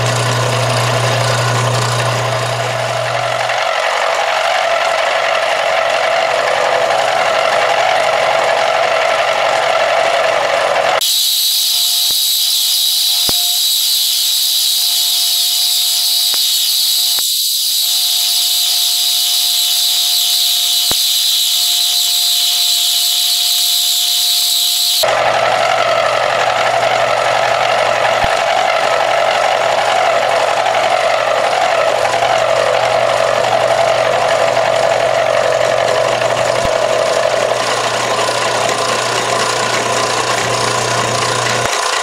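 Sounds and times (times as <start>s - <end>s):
milling machine cutting metal: 11.0s - 25.0s
thin steady tone: 11.0s - 25.1s.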